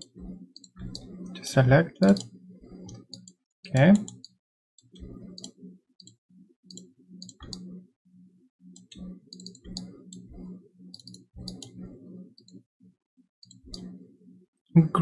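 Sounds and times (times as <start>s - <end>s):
computer mouse clicking: 0.0s - 1.2s, 2.0s - 7.7s, 8.7s - 12.6s, 13.4s - 14.0s.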